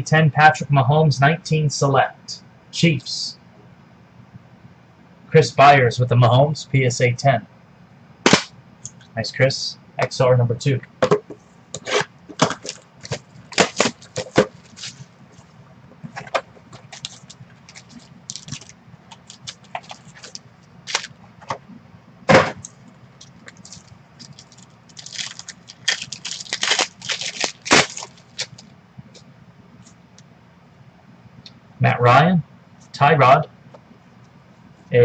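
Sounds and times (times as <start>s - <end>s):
foil wrappers tearing and crinkling: 11.8s - 15.1s, 16.7s - 21.1s, 23.2s - 28.7s.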